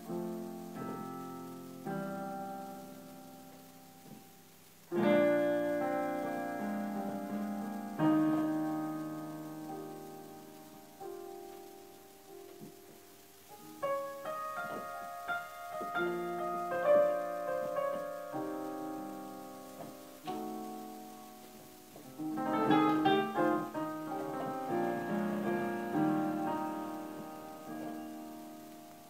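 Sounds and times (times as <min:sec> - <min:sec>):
slow piano music: 0:00.0 - 0:29.0.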